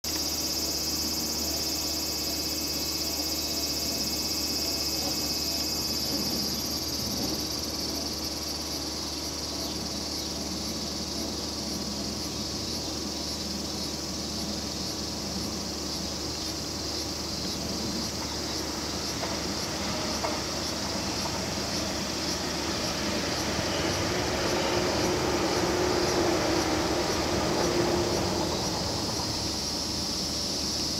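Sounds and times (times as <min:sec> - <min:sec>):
cicadas buzzing: 0:00.0 - 0:30.9
electric train running past: 0:00.1 - 0:30.9
train motor hum: 0:17.1 - 0:30.9.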